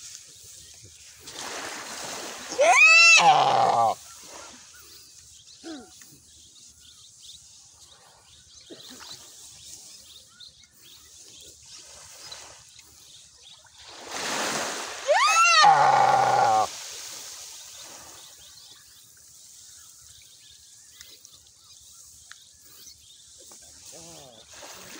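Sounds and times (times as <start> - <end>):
deer distress bleat: 2.6 - 4.0, 15.1 - 16.7.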